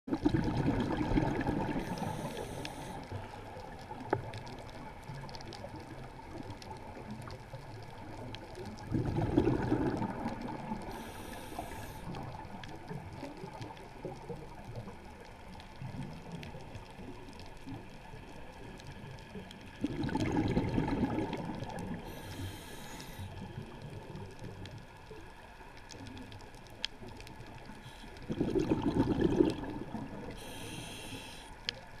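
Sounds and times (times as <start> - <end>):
exhaled bubbles surging: 0.1 - 2.4, 4.2 - 11.1, 19.7 - 22.2, 27.0 - 30.6
low underwater rumble: 0.1 - 32.0
faint ticks: 1.6 - 9.0, 9.8 - 19.8, 21.2 - 28.4, 29.9 - 32.0
regulator inhalation hiss: 1.8 - 3.1, 10.9 - 12.2, 22.0 - 23.4, 30.3 - 31.6.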